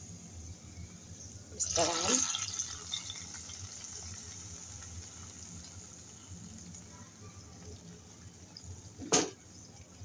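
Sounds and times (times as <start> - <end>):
ghee sizzling: 1.6 - 10.0.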